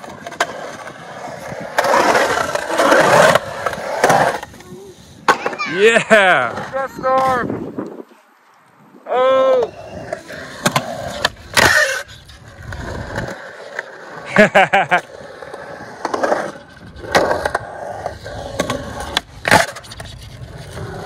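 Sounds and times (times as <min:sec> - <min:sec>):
skateboard clacking on ground: 0:00.0 - 0:07.5
skateboard wheels rolling on concrete: 0:00.0 - 0:21.0.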